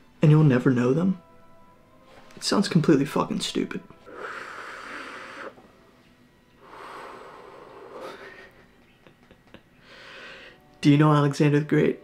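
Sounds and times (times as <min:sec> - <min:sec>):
man drawing on a cigar: 0:04.0 - 0:05.6, 0:06.6 - 0:08.5
man exhaling smoke: 0:04.1 - 0:05.6, 0:06.6 - 0:08.5.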